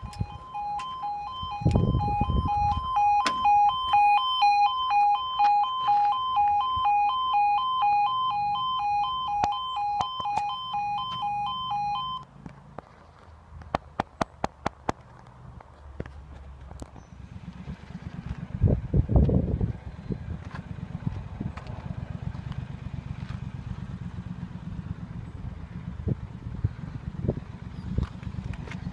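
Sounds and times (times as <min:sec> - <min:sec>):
two-tone warning alarm: 0:00.0 - 0:12.2.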